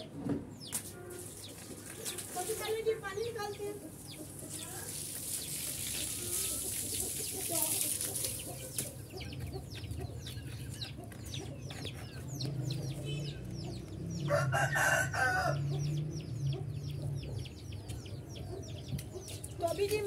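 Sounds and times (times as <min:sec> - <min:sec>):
chickens cheeping and clucking: 0:00.0 - 0:20.0
rooster crowing: 0:14.2 - 0:15.8.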